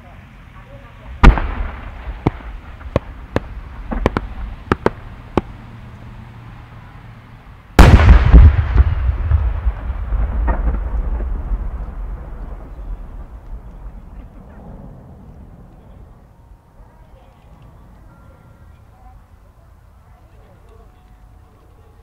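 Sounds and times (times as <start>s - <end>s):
rolling rumble: 0.0s - 18.2s
faint firework crackles: 0.0s - 22.0s
firework shell boom: 1.2s - 5.6s, 7.8s - 11.7s
sharp firework pops: 1.2s - 5.6s, 7.8s - 14.2s.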